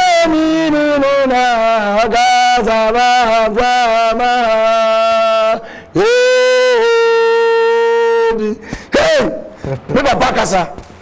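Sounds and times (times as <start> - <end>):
man singing unaccompanied: 0.0 - 8.6
man breathing: 5.6 - 6.0, 8.6 - 9.9.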